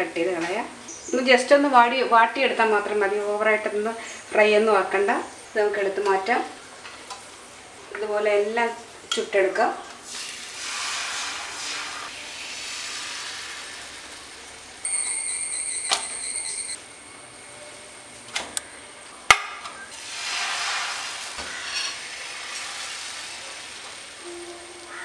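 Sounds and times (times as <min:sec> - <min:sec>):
batter sizzling on a griddle: 0:10.0 - 0:15.8, 0:19.9 - 0:25.0
high whistle-like tone: 0:14.8 - 0:16.8.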